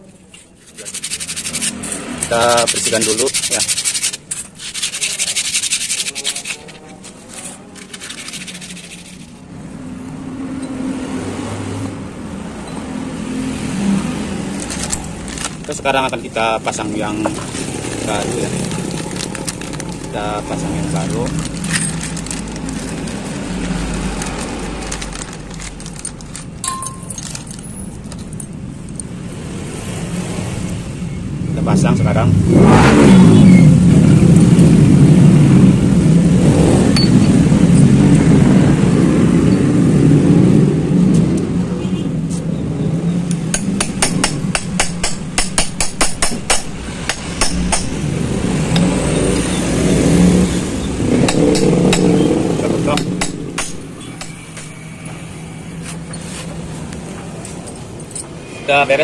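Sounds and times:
small metal parts clinking: 0.4 - 9.4, 14.5 - 29.2
hammer tapping on steel: 43.3 - 48.0.

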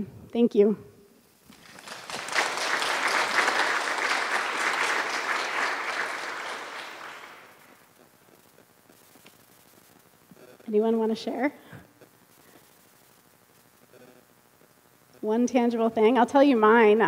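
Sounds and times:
audience applauding: 1.5 - 7.9.

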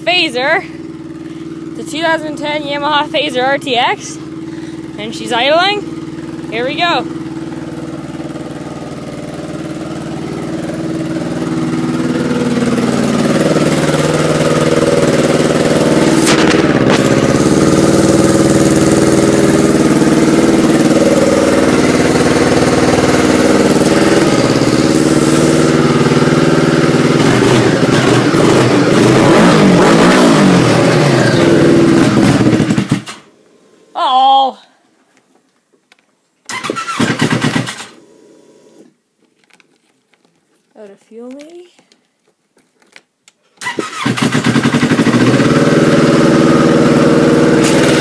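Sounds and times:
snowmobile engine running: 0.0 - 33.1, 44.2 - 48.0.

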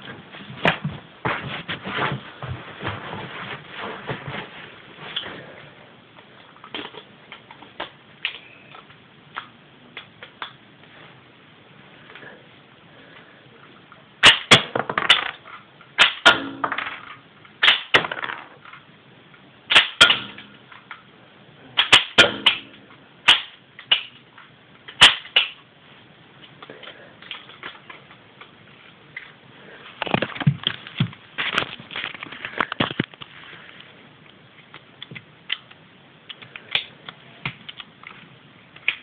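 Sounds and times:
plastic bricks clacking on wooden floor: 14.7 - 15.6.

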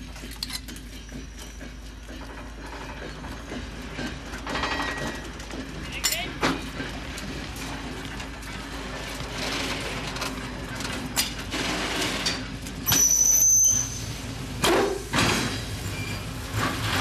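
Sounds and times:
high-pitched metallic squeal: 12.8 - 14.2.

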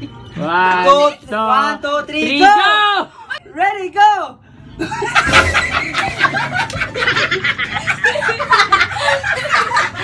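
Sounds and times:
young people laughing and shrieking: 4.8 - 10.0.

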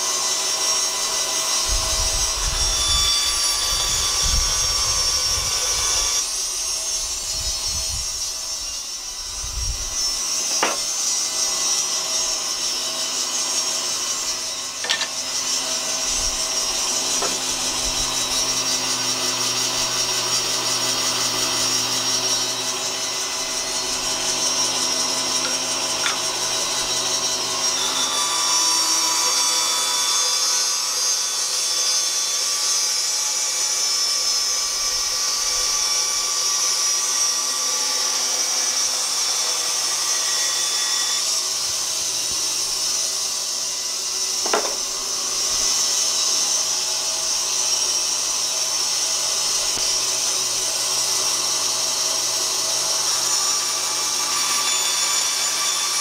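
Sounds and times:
bandsaw cutting wood: 0.0 - 56.0.

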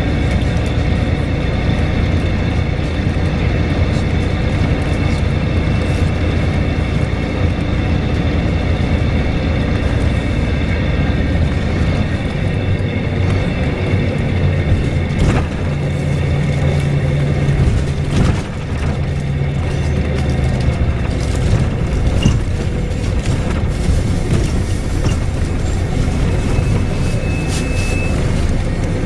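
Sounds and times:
bus diesel engine droning: 0.0 - 29.0.

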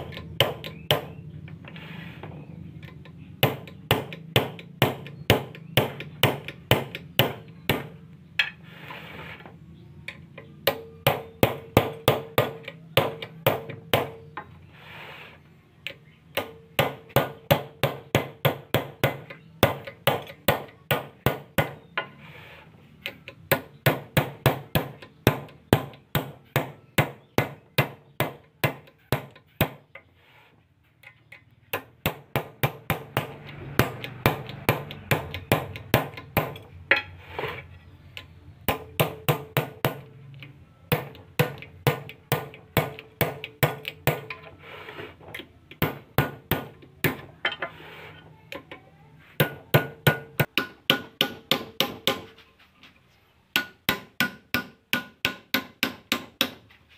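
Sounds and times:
hammer striking a metal punch: 0.0 - 1.2, 31.7 - 37.2, 38.7 - 40.1, 40.9 - 44.5, 45.7 - 47.6, 49.4 - 52.3, 53.5 - 56.6.

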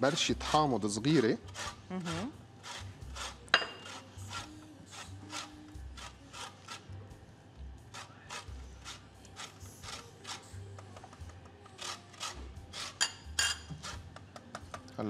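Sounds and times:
lemon rasping on metal grater: 0.0 - 6.9, 7.9 - 10.6, 11.8 - 14.1.

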